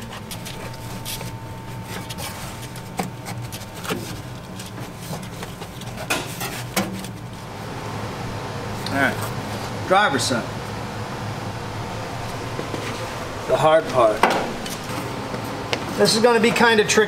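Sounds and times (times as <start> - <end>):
paper crinkles: 0.0 - 7.4
heavy paper rustling and scraping: 0.0 - 7.5, 12.2 - 16.7.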